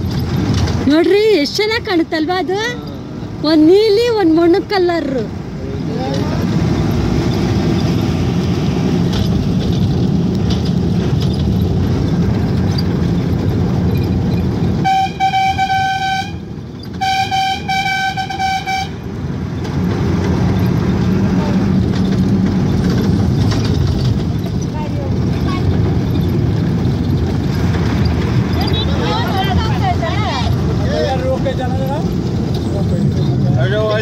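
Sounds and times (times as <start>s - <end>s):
vehicle rumble: 0.0s - 34.0s
vehicle horn blasts: 14.8s - 19.1s.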